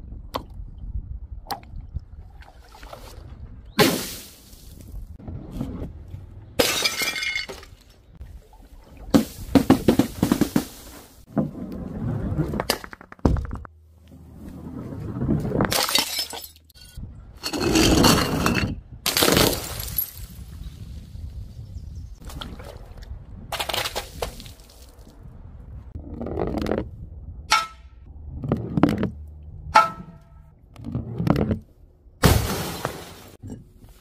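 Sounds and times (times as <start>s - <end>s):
glass smashing on paving: 6.6s - 7.7s, 15.7s - 17.0s, 19.1s - 20.3s
ball rolling down wooden plank: 9.6s - 13.7s.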